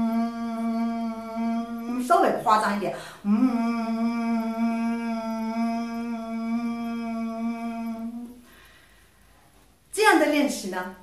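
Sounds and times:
woman humming a held note: 0.0 - 2.5.

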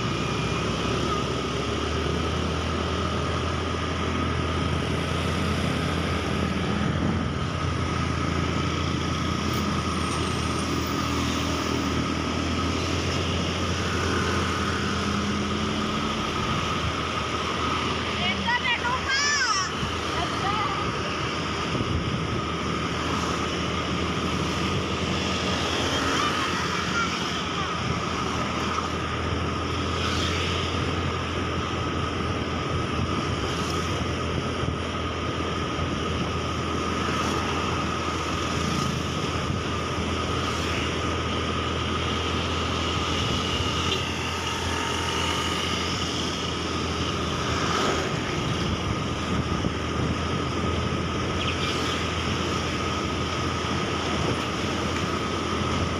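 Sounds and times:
wind rushing over microphone: 19.6 - 25.8, 45.0 - 55.9
motorbike engine cruising: 19.8 - 55.9.

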